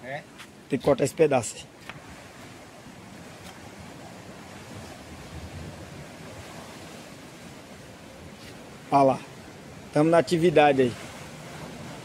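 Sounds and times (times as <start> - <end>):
sea waves washing: 0.3 - 12.0
wind on microphone: 1.8 - 8.8.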